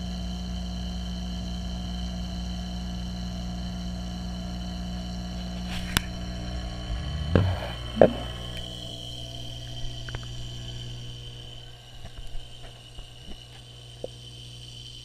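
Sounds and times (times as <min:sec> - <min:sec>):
faint high whine: 0:00.6 - 0:15.0
aquarium pumps humming: 0:03.4 - 0:15.0
low knock: 0:07.0 - 0:08.7.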